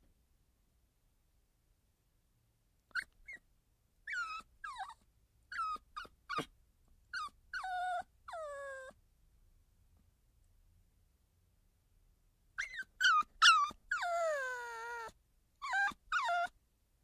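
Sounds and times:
puppy crying: 4.1 - 6.5, 7.2 - 9.0, 12.6 - 16.6.

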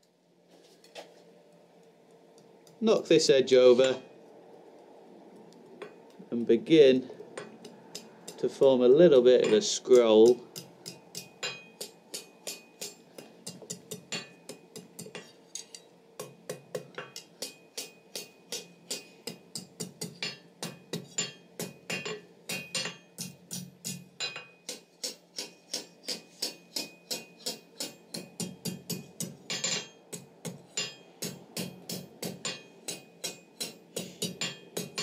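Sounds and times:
hammer striking steel on anvil: 7.4 - 35.0.

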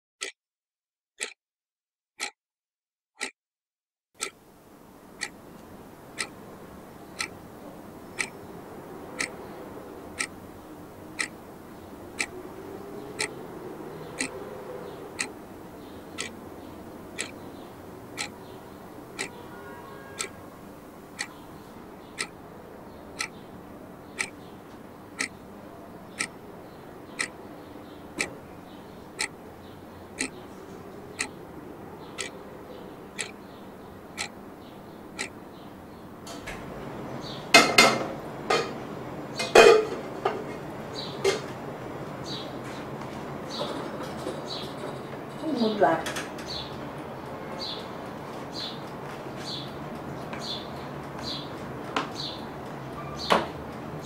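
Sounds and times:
clock ticking: 1.2 - 1.4, 3.2 - 3.4, 4.2 - 4.4, 5.2 - 6.4, 7.1 - 7.4, 8.2 - 8.4, 9.1 - 9.4, 10.1 - 10.4, 11.2 - 12.4, 13.2 - 13.4, 14.1 - 14.4, 15.2 - 17.5, 18.1 - 18.6, 19.2 - 20.4, 21.2 - 21.4, 22.1 - 22.4, 23.2 - 23.4, 24.1 - 25.4, 26.2 - 26.4, 27.2 - 27.5, 28.2 - 28.4, 29.2 - 29.4, 30.1 - 30.4, 31.2 - 31.4, 32.2 - 32.4, 33.1 - 33.4, 34.1 - 34.4, 35.1 - 35.5.

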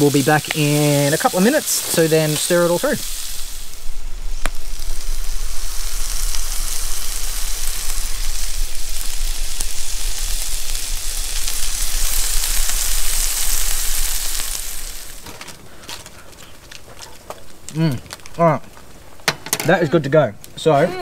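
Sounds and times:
bacon sizzling in a frying pan: 0.0 - 15.3.

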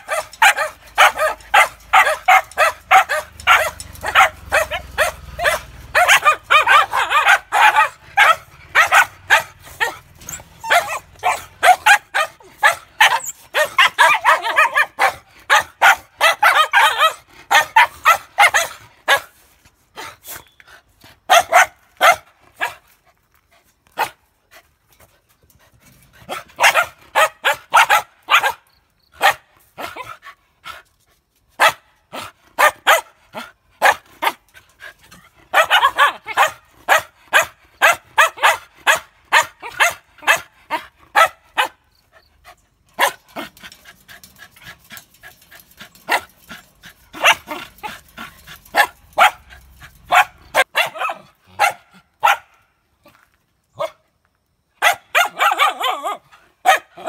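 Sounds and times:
dogs barking: 0.0 - 19.4, 21.3 - 22.8, 26.2 - 28.6, 29.2 - 30.1, 31.6 - 34.5, 35.5 - 41.8, 43.0 - 43.6, 47.1 - 52.6, 54.8 - 57.0.

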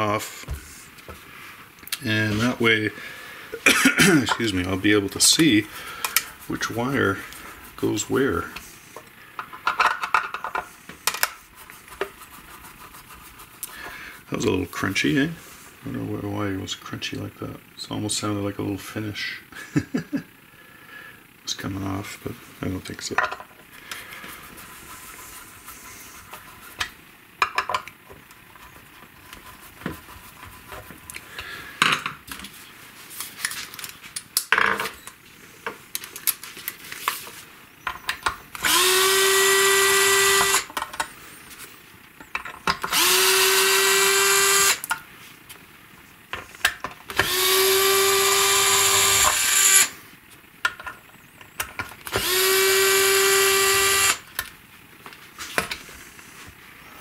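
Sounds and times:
cordless drill motor whine: 38.6 - 40.7, 42.8 - 44.9, 47.1 - 50.0, 52.0 - 54.4.

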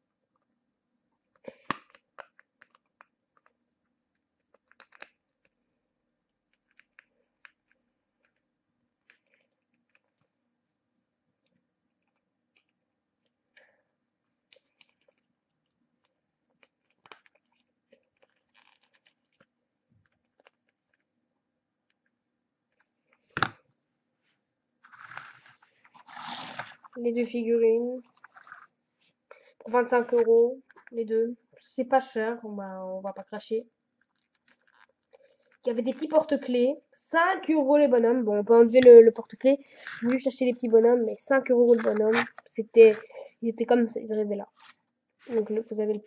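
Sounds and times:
small clicks and crackles: 1.4 - 5.6, 6.5 - 8.4, 9.0 - 10.3, 14.5 - 21.1, 34.0 - 36.4.

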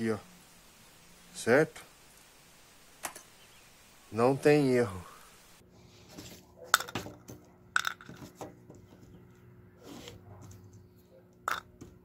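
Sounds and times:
faint steady hum: 0.0 - 6.3.

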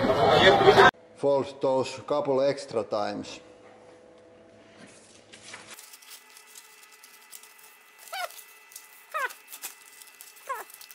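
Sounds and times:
animal whimpers: 8.0 - 8.4, 9.1 - 9.6, 10.4 - 10.9.

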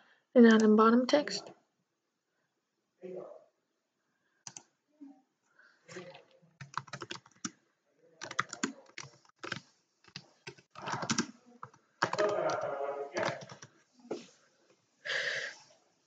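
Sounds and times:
typing on computer keyboard: 4.4 - 4.7, 6.6 - 7.6, 8.2 - 13.7.

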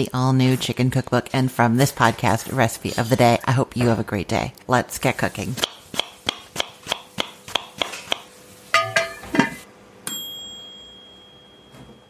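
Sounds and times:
knife chopping: 5.6 - 8.3
bright ringing ding: 8.8 - 9.4, 10.0 - 12.0.

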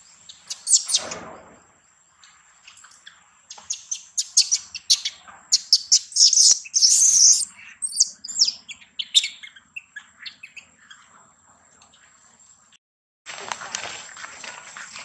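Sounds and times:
infant monkey squealing: 0.5 - 1.1, 3.7 - 8.6.

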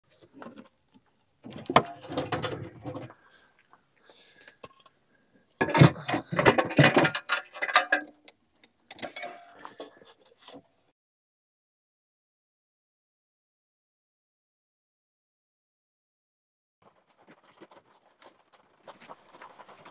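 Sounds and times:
metal door hardware clattering: 5.6 - 8.1.

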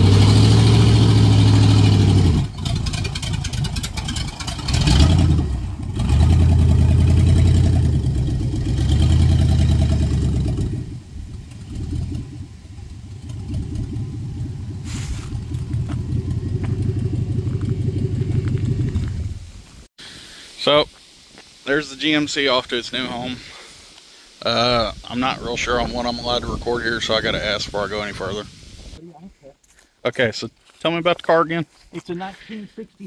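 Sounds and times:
pickup truck engine revving: 0.0 - 19.4
truck engine idling: 0.0 - 19.4.

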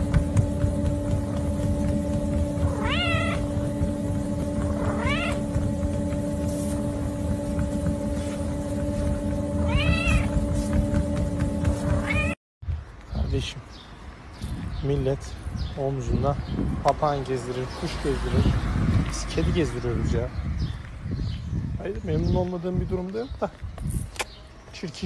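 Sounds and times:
treadmill motor humming: 0.0 - 12.4
kitten meowing: 2.7 - 3.4, 4.8 - 5.4, 9.7 - 10.3.

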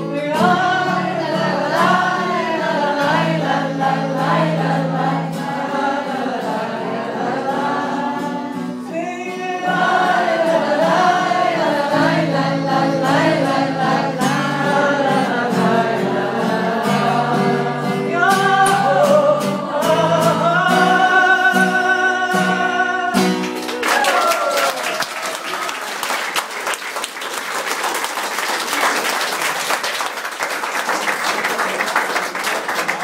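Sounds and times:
woman singing: 0.0 - 23.3
acoustic guitar: 0.0 - 26.4
audience applause: 23.4 - 33.0.

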